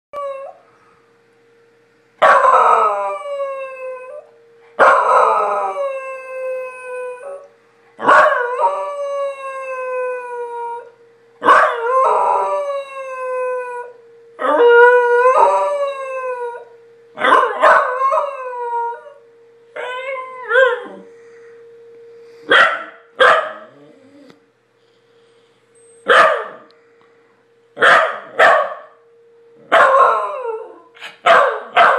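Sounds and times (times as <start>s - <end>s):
faint steady siren tone: 0.2s - 31.9s
dog howling: 19.8s - 21.1s, 29.7s - 31.9s.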